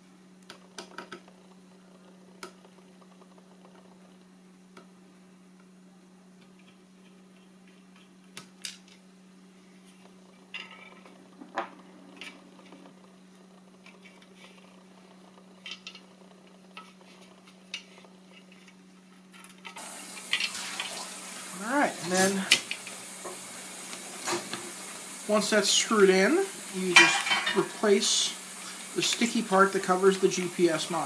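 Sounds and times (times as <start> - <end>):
steady low hum: 0.0 - 31.0
hiss: 19.8 - 31.0.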